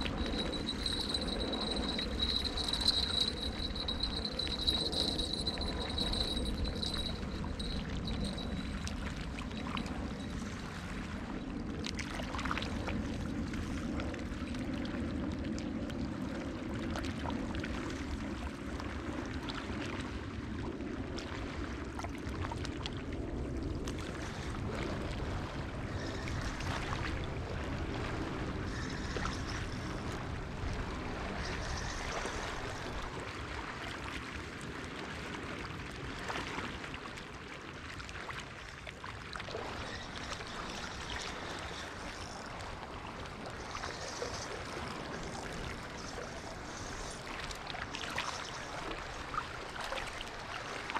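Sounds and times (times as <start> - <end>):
low wind rumble: 0.0 - 11.8.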